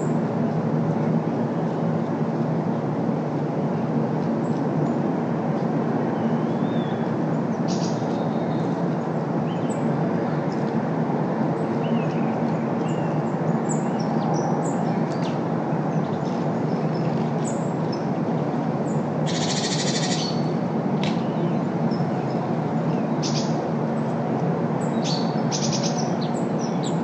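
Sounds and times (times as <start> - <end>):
city traffic noise: 0.0 - 27.0
rapid rattling bird call: 19.2 - 20.5, 23.2 - 23.6, 25.0 - 26.9
bird chirps: 19.3 - 20.4.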